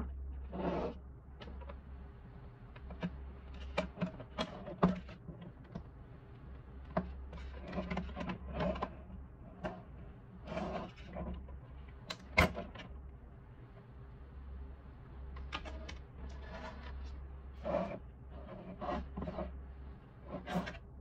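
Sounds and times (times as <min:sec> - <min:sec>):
plastic scraping rubs: 0:10.4 - 0:11.5, 0:15.4 - 0:20.9.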